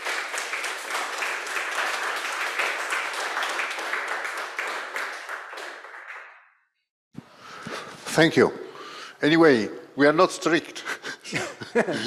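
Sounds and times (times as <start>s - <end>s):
audience applauding: 0.0s - 6.4s.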